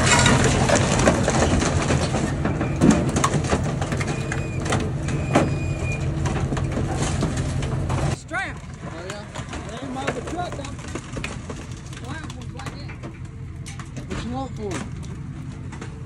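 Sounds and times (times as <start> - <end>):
car bodies cracking and knocking: 0.0 - 16.0
excavator diesel engine running: 0.0 - 16.0
high squeals of metal: 1.4 - 7.2.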